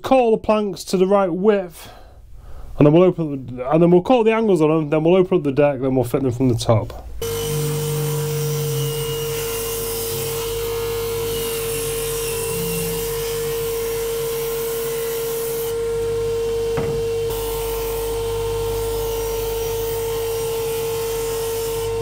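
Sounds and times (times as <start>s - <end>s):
table saw cutting wood: 7.2s - 22.0s.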